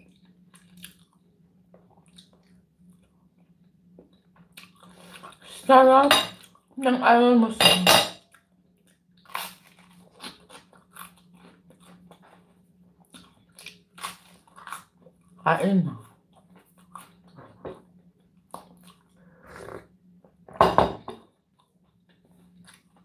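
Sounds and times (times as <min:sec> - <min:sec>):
chewing toast: 0:00.0 - 0:05.5, 0:08.3 - 0:15.4, 0:16.2 - 0:17.4.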